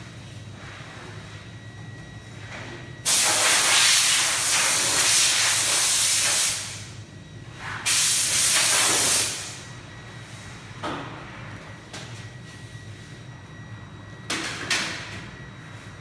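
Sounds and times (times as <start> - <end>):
loud hissing bursts: 3.1 - 6.8, 7.9 - 9.6.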